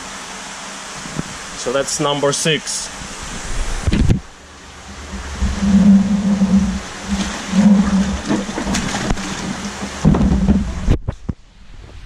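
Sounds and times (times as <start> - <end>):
low hum: 2.8 - 12.0
water pouring and splashing: 3.2 - 11.0.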